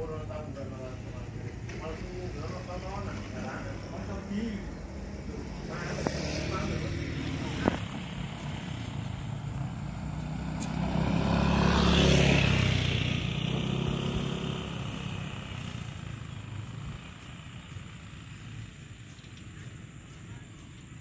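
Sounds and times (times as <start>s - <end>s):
motor scooter passing by: 1.8s - 20.7s.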